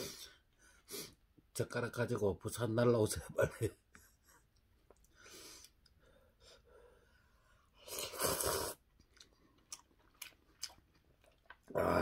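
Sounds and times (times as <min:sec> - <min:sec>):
person slurping noodles: 0:07.8 - 0:08.9.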